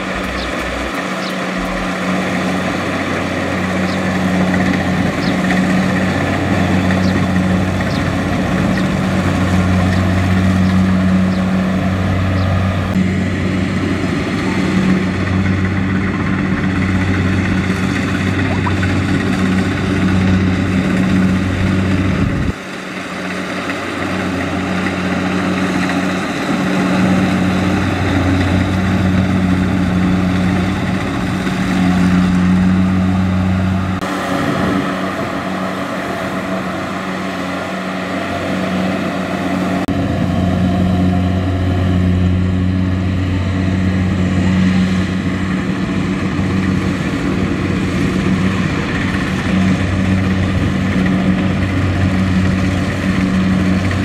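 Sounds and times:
combine harvester engine droning: 0.0s - 54.0s.

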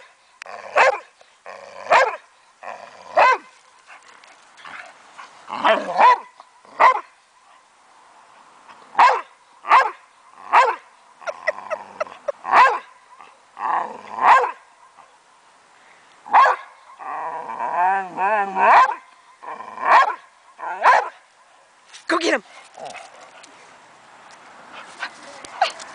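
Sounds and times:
dog barking: 0.8s - 1.1s, 1.9s - 2.2s, 5.6s - 7.1s, 9.0s - 10.8s, 12.5s - 12.9s, 14.2s - 14.6s, 16.3s - 16.7s, 19.9s - 20.2s, 20.8s - 21.2s.

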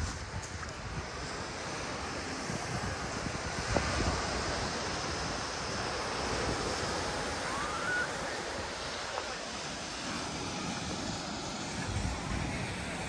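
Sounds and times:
surf on sandy beach: 0.0s - 13.0s.

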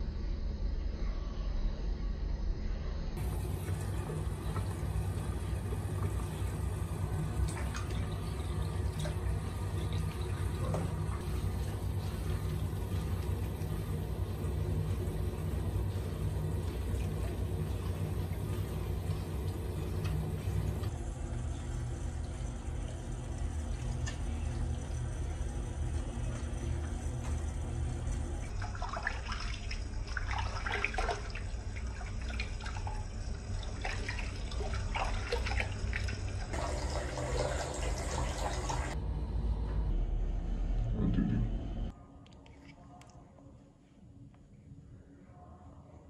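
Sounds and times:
tap water running into sink: 3.2s - 39.0s
water splashing: 22.1s - 39.0s.

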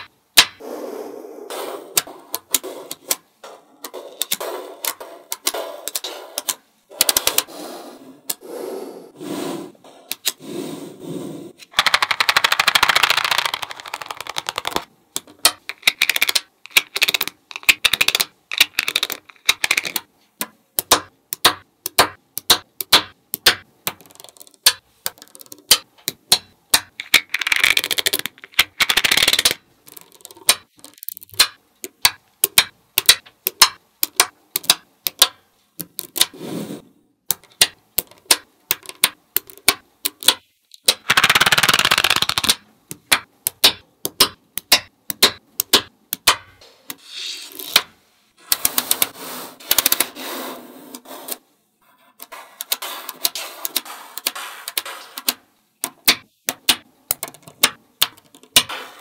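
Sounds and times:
magnetic balls clicking: 11.6s - 36.4s, 37.2s - 47.0s, 52.6s - 58.8s
magnetic balls rattling: 11.7s - 20.1s, 23.4s - 34.7s.

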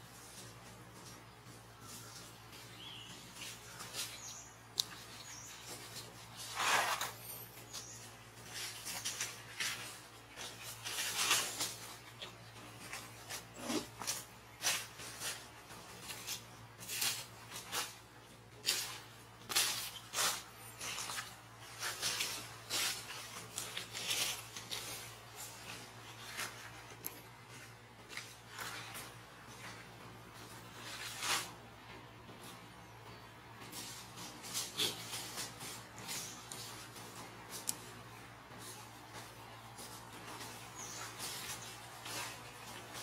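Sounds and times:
dry leaves rustling and crackling: 1.9s - 29.8s, 38.6s - 43.0s.

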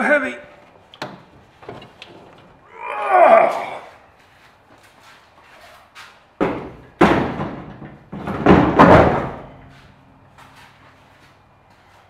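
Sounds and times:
heavy battery thudding on truck bed: 6.4s - 9.7s.

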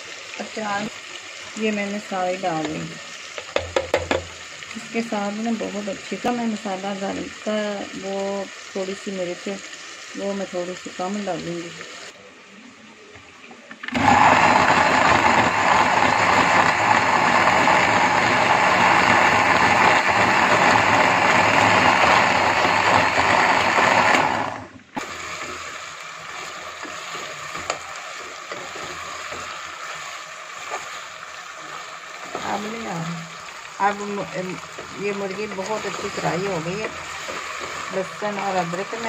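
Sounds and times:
chicken sizzling in a pot: 0.0s - 39.0s
electric blender running: 13.8s - 39.0s.

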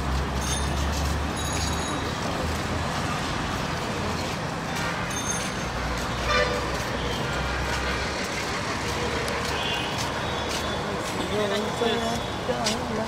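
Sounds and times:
traffic din: 0.0s - 13.0s
car horn toot: 6.2s - 6.7s.

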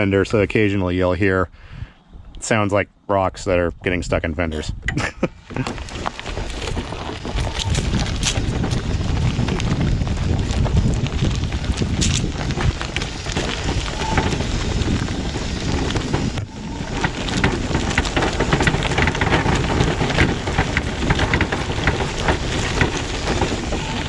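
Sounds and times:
rocks clicking against fenders: 5.0s - 24.0s
tires crunching over gravel: 5.1s - 24.0s.

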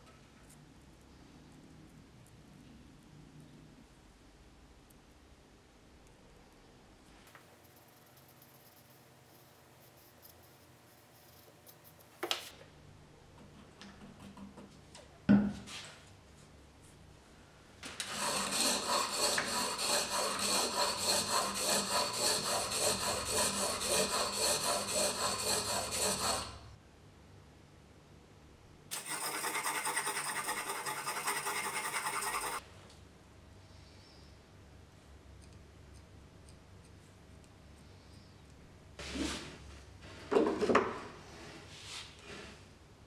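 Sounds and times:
blade grinding on sharpening stone: 18.2s - 26.6s, 29.0s - 32.6s.

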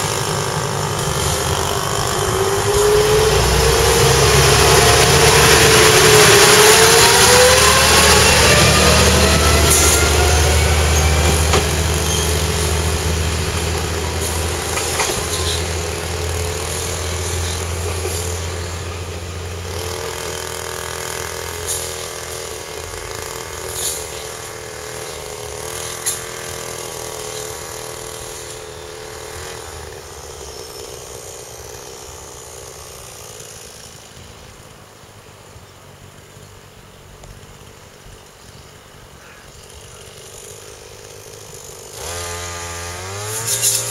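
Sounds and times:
diesel railcar engine working hard: 0.0s - 43.9s.

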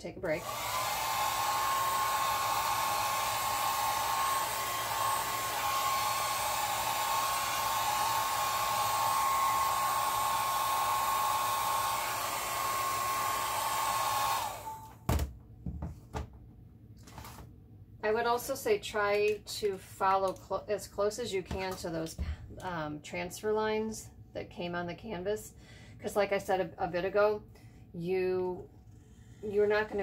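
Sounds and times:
hair dryer motor whining: 0.2s - 15.2s.

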